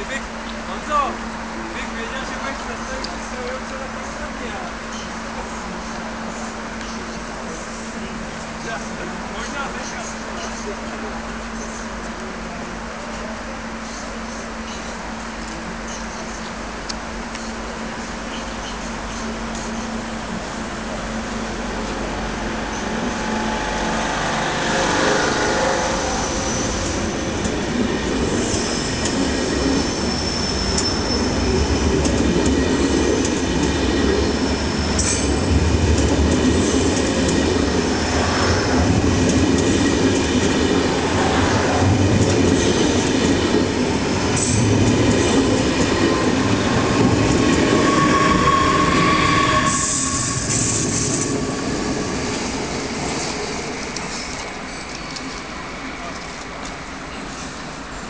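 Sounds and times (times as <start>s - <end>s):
wheels rumbling on rail: 0.0s - 58.0s
high wheel squeal: 22.6s - 27.3s, 28.3s - 32.0s, 33.9s - 35.6s, 37.6s - 38.9s, 46.1s - 52.4s.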